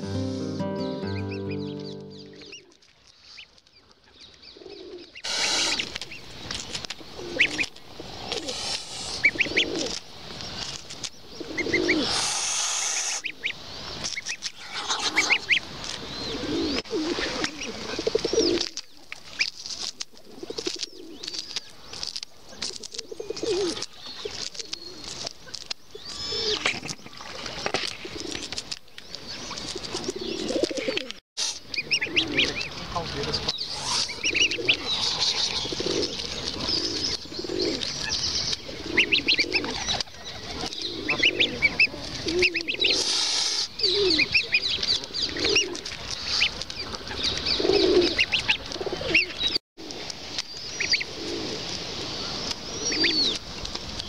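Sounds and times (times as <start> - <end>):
pigeons cooing: 4.6 - 6.0, 7.0 - 10.0, 11.3 - 13.5, 14.6 - 18.8, 20.2 - 21.4, 22.6 - 25.2, 26.0 - 26.9, 29.5 - 32.7, 33.4 - 45.8, 47.1 - 49.6, 50.8 - 51.7, 52.7 - 53.4
goslings peeping: 4.8 - 10.8, 11.4 - 18.7, 31.6 - 49.6.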